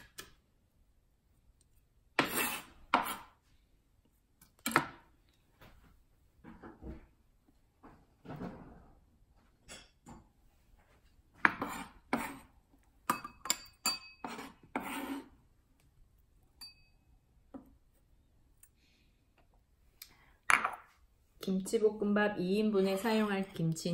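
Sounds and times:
knife scraping cutting board: 0:02.2 - 0:03.4, 0:11.4 - 0:12.5, 0:14.2 - 0:15.4
knife clinking ceramic bowl: 0:13.1 - 0:14.5, 0:16.6 - 0:17.0.

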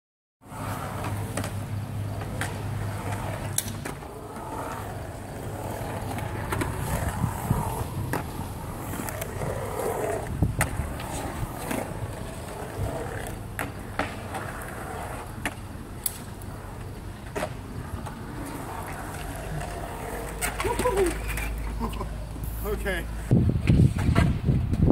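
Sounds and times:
skateboard wheels rolling on concrete: 0:00.4 - 0:24.9
skateboard clacks and knocks: 0:17.3 - 0:21.6.

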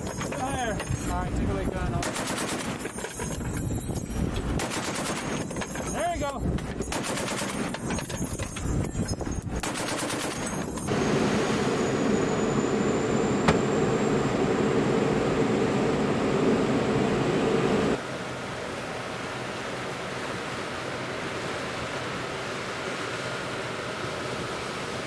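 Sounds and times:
boat engines humming: 0:00.0 - 0:25.0
machine gun firing bursts: 0:02.0 - 0:03.3, 0:04.6 - 0:08.5, 0:09.6 - 0:10.8.

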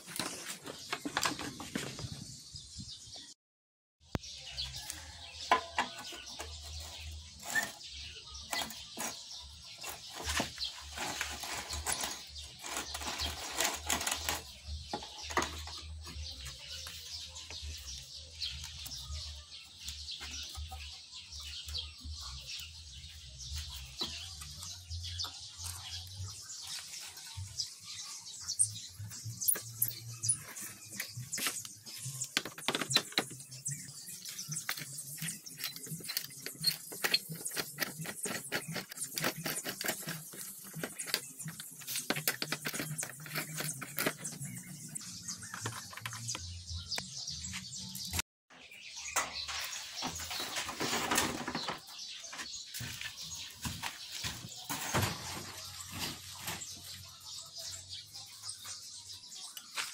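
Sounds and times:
socket wrench clicking and scraping: 0:34.7 - 0:44.5.

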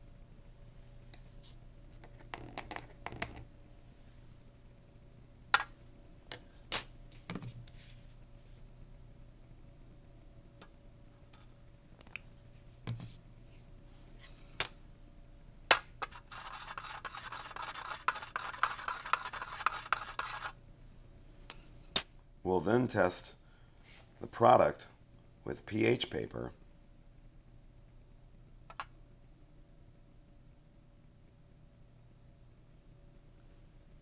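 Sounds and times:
stirring rod scratching powder: 0:16.0 - 0:20.6.

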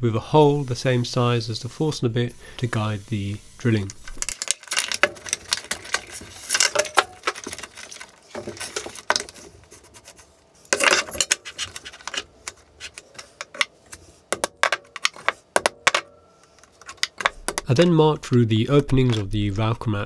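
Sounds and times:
metal parts clinking and scraping: 0:03.8 - 0:09.5, 0:10.7 - 0:19.3
hammer tapping metal punch: 0:17.1 - 0:17.8.

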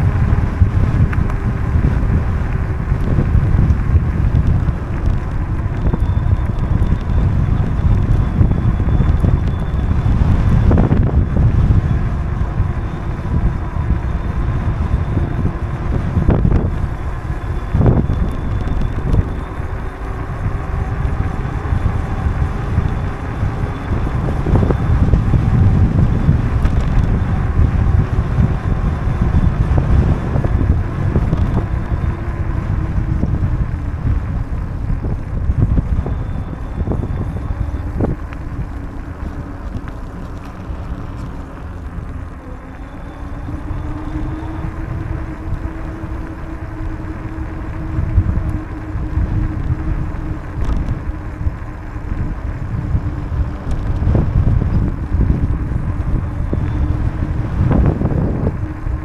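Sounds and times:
tyres rolling on asphalt: 0:00.0 - 0:59.0
wind buffeting microphone: 0:00.0 - 0:59.0.

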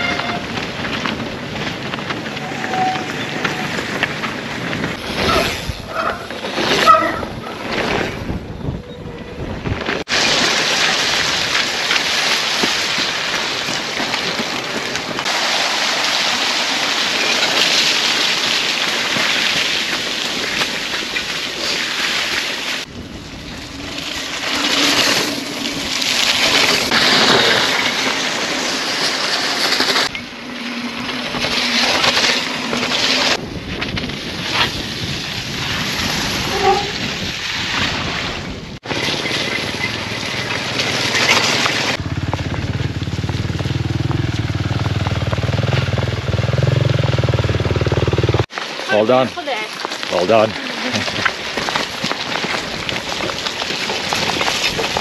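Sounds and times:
bike tyres on muddy trail: 0:00.0 - 0:55.0
wind rushing over microphone: 0:03.6 - 0:10.1, 0:22.8 - 0:27.2, 0:33.2 - 0:38.9.

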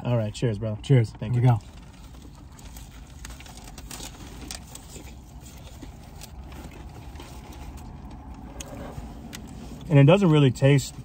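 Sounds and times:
vehicle idling hum: 0:00.0 - 0:11.0
people biting and handling food: 0:01.6 - 0:09.9.

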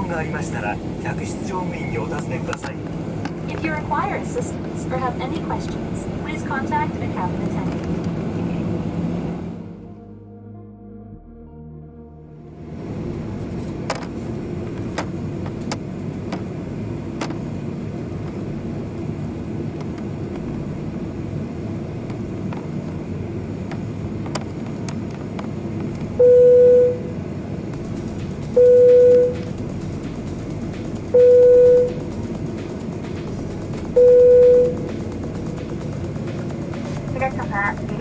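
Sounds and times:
aircraft engine and rolling rumble: 0:00.0 - 0:10.0, 0:12.4 - 0:38.0
sharp ticks: 0:27.7 - 0:38.0
single-tone cabin chime: 0:31.2 - 0:32.0, 0:34.0 - 0:34.8.

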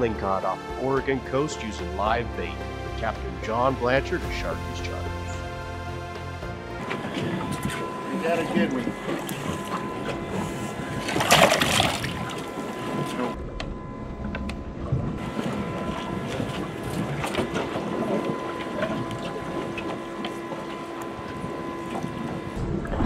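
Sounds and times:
boat hum: 0:00.0 - 0:23.0
water splashing in tank: 0:11.0 - 0:12.6.

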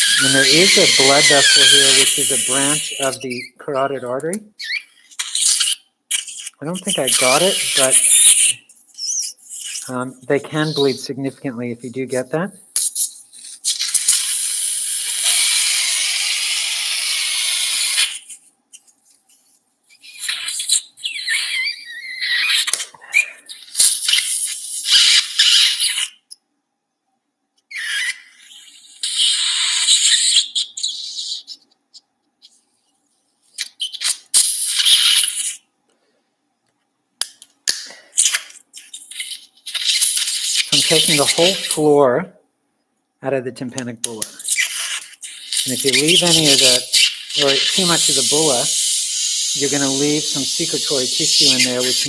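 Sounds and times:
surgical suction hissing: 0:00.0 - 0:26.2, 0:27.8 - 0:31.6, 0:33.6 - 0:35.6, 0:37.7 - 0:42.0, 0:44.0 - 0:52.0
surgical instruments clicking and scraping: 0:12.7 - 0:14.1, 0:37.2 - 0:41.8, 0:44.0 - 0:48.8.

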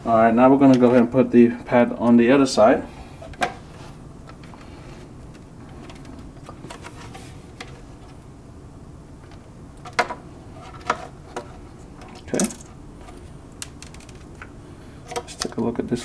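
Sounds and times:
low room hum: 0:00.0 - 0:16.0
hands handling plastic clicks: 0:12.0 - 0:14.5.

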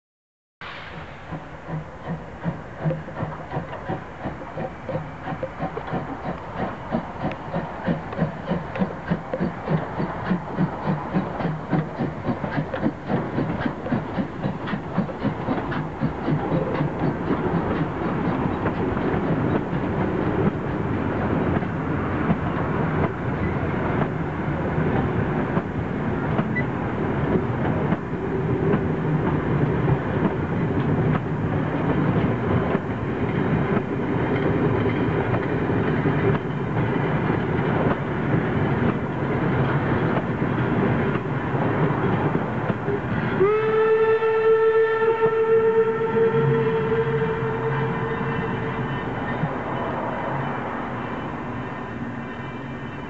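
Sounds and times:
steam locomotive exhaust beats: 0:00.6 - 0:53.0
coaches rumbling on track: 0:01.2 - 0:53.0.

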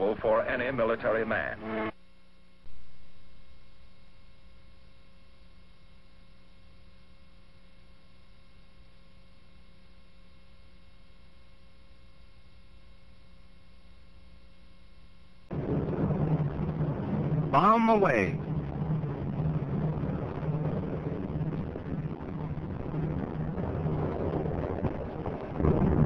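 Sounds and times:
electrical hum: 0:00.0 - 0:26.0
loud noisy sound: 0:15.5 - 0:26.0.

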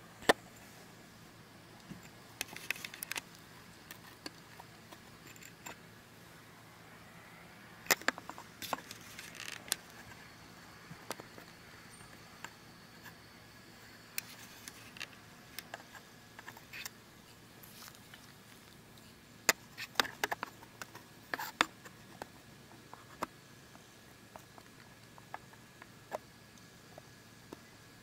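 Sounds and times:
faint steady hiss: 0:00.0 - 0:28.0
hands handling camera clicks: 0:02.4 - 0:04.4.

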